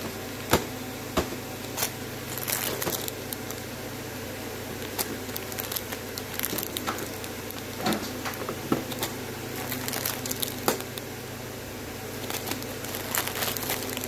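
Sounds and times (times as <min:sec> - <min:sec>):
steady low hum: 0:00.0 - 0:14.0
plastic bags crinkling: 0:01.7 - 0:03.7, 0:04.6 - 0:11.1, 0:12.1 - 0:14.0
sharp crackles: 0:01.8 - 0:03.7, 0:04.8 - 0:07.9, 0:08.8 - 0:11.0, 0:12.2 - 0:14.0.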